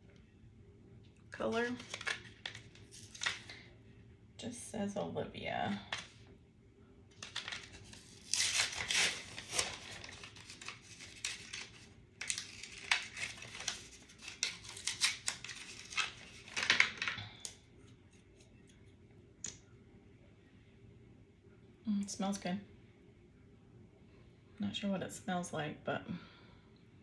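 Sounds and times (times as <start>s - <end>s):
packaging crinkling and tearing: 1.5s - 3.6s, 7.1s - 17.6s.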